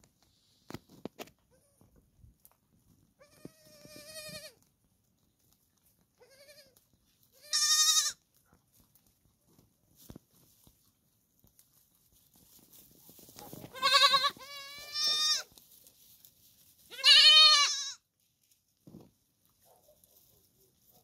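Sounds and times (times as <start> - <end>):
goat kid bleating: 3.2 - 4.6, 6.2 - 8.2, 13.7 - 15.5, 16.9 - 18.1.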